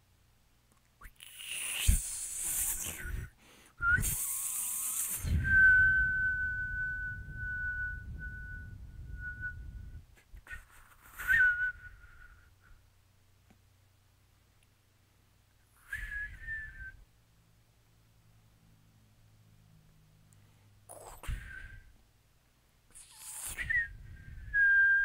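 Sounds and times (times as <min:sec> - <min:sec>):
high thin whistle tone: 0:01.2 - 0:12.4, 0:15.8 - 0:17.0, 0:20.9 - 0:21.9, 0:22.9 - 0:25.0.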